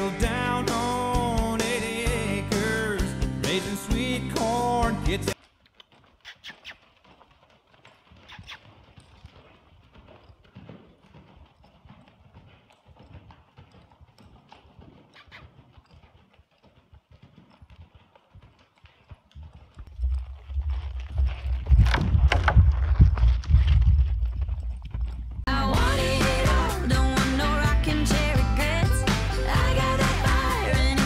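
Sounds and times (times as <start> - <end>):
horse hoofbeats in sand: 4.0 - 25.5.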